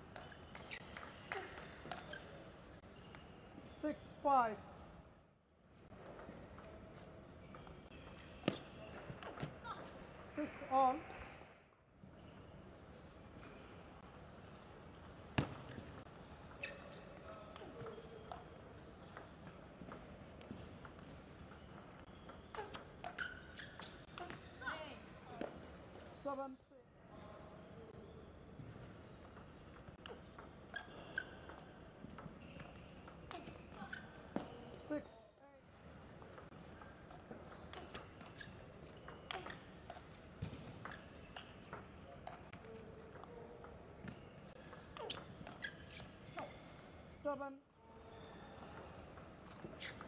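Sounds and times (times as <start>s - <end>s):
ping pong ball hitting paddles and table: 0.1s - 3.7s, 5.9s - 10.5s, 14.0s - 24.6s, 29.2s - 34.6s, 36.1s - 46.9s, 48.6s - 50.0s
shoes squeaking on floor: 0.2s - 3.9s, 6.9s - 10.5s, 16.6s - 18.2s, 21.6s - 25.5s, 30.1s - 34.9s, 37.4s - 42.8s, 44.0s - 46.7s, 48.0s - 50.0s.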